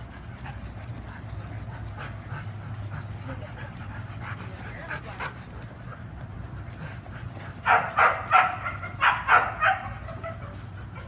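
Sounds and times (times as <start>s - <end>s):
dog barking: 7.6s - 10.0s.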